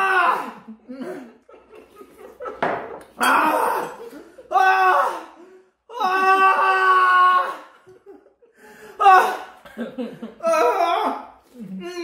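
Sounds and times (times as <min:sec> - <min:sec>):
man wailing: 0:03.2 - 0:05.3.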